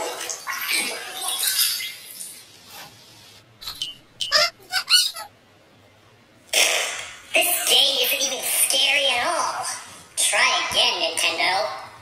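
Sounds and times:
short squeaky pitched cries: 4.3 - 5.3.

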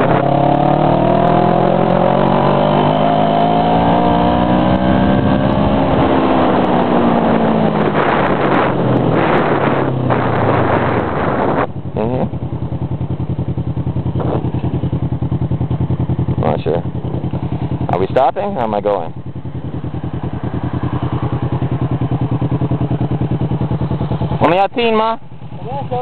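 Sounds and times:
motorcycle engine: 0.0 - 26.0
wind rushing: 3.4 - 11.8.

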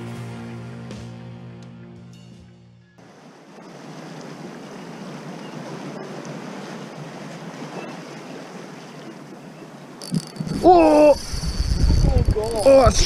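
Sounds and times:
small waves against rocks: 3.0 - 11.2
faint ticks: 10.0 - 10.7
wind noise on microphone: 10.1 - 13.0.

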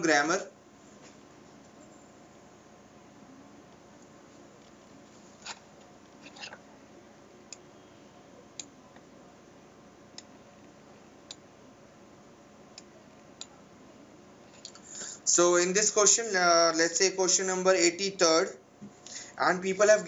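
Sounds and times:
faint room hum: 0.0 - 20.0.

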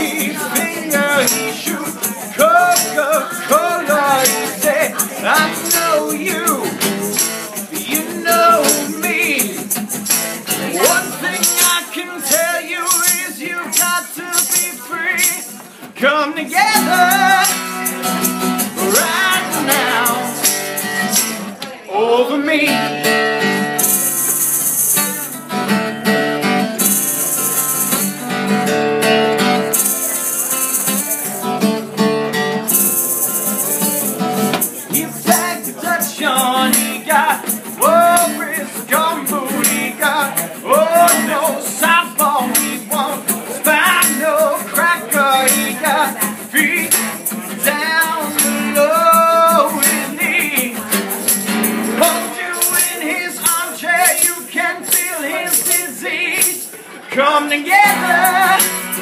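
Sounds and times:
hand-held rattle shaken: 0.0 - 15.6, 23.8 - 25.3, 26.8 - 28.2, 29.7 - 31.5, 32.7 - 56.7
man singing: 0.0 - 24.3, 32.7 - 59.0
acoustic guitar strumming: 0.0 - 59.0.

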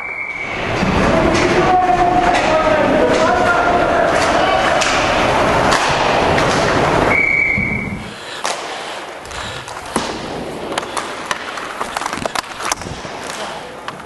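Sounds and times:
rink noise rushing: 0.4 - 13.8
hockey sticks and puck clacking: 0.4 - 14.0
skates scraping on ice: 0.5 - 14.0
referee's whistle blast: 7.1 - 8.0.

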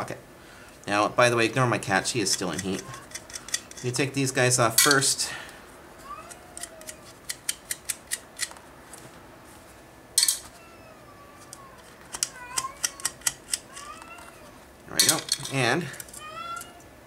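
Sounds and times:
cat meowing faintly: 10.5 - 14.6
small metallic clicks: 11.5 - 14.3.

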